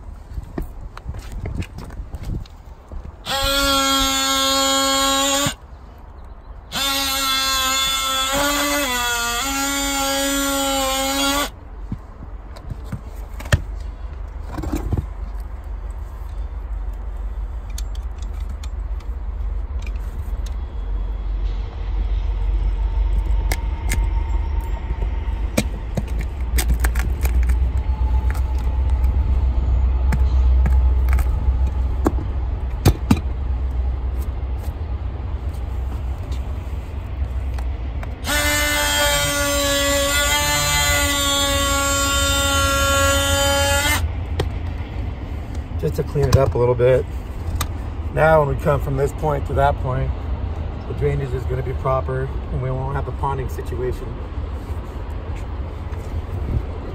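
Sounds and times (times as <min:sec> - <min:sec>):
cordless power tool buzzing: 0:03.2 - 0:05.6, 0:06.7 - 0:11.5, 0:38.2 - 0:44.1
low rumble: 0:11.6 - 0:38.2.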